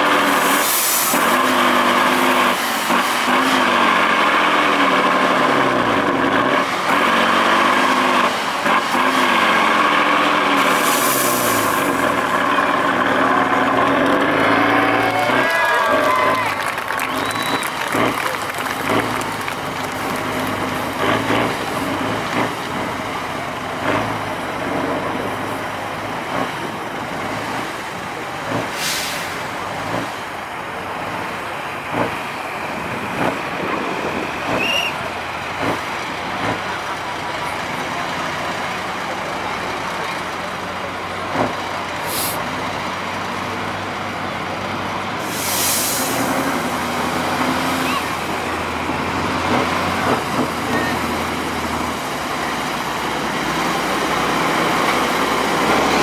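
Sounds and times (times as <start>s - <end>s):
diesel truck engine under load: 0.0s - 56.0s
air brake hiss: 28.7s - 29.4s, 42.1s - 42.4s, 45.3s - 46.2s.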